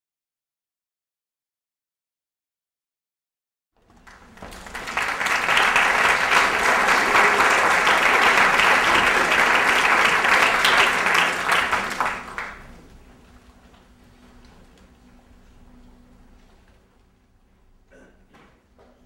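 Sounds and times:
audience applauding: 3.9 - 12.9.

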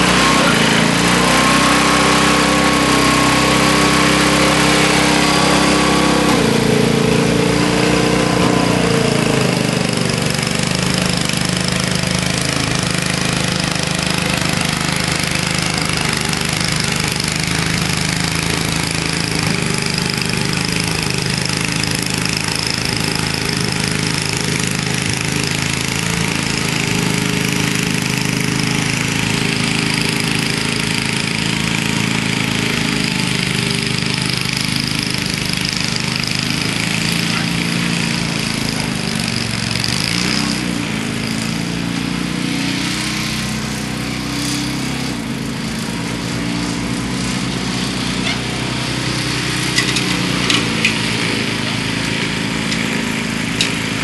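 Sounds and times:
snowblower engine running: 0.0 - 54.0.

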